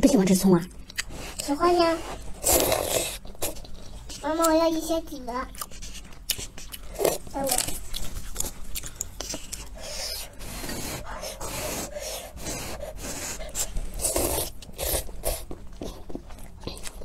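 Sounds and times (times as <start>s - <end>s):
slurping noodles and broth: 1.0s - 4.2s, 9.2s - 15.9s.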